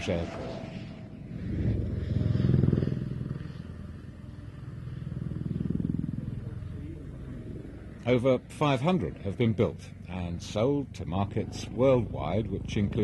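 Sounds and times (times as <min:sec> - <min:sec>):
helicopter rotor chopping: 0:00.0 - 0:13.0
helicopter turbine noise: 0:00.0 - 0:13.0.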